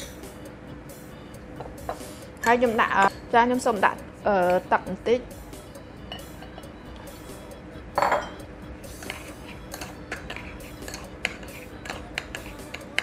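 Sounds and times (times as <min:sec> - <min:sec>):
metal spoon clinking on glass bowl: 0:02.4 - 0:03.3, 0:08.0 - 0:08.4.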